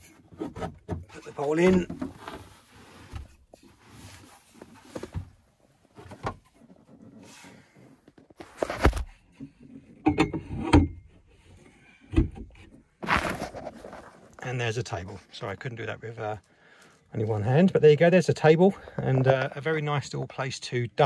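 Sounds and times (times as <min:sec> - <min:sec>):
rustling: 0:00.3 - 0:09.2, 0:13.0 - 0:15.4.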